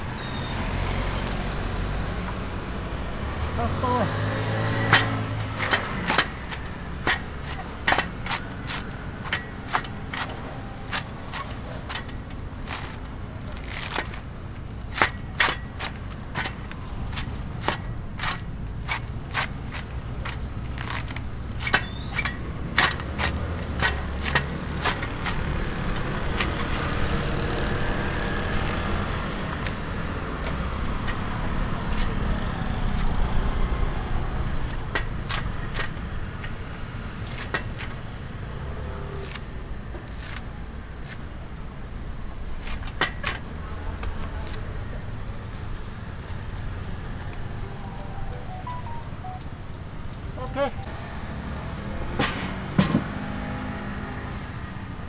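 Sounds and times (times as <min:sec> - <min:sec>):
fibre scraping: 0:04.9 - 0:27.1
coconut husk cracking and snapping: 0:12.6 - 0:21.8, 0:22.8 - 0:27.5, 0:43.9 - 0:44.7.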